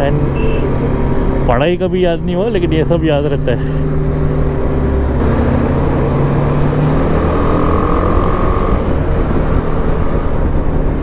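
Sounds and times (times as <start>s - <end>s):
motorcycle engine cruising: 0.0s - 11.0s
wind rumbling on microphone: 8.0s - 11.0s.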